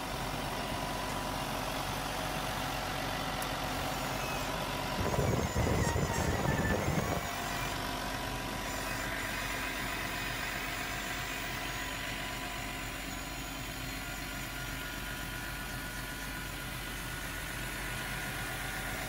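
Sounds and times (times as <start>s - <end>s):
electric actuator motor whine: 3.4s - 7.8s
loud rough machine noise: 3.6s - 15.9s.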